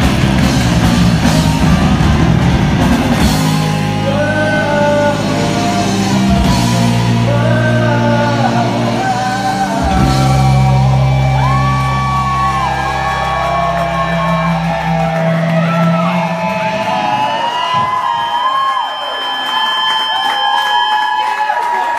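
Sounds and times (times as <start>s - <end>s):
electric guitar notes: 0.0s - 17.9s
bass notes: 0.0s - 18.2s
live rock band playing: 0.0s - 18.2s
person singing: 3.5s - 17.0s.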